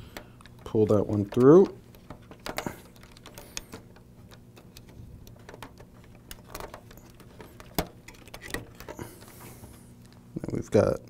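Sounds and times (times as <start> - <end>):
small clicks and taps: 0.0 - 9.3.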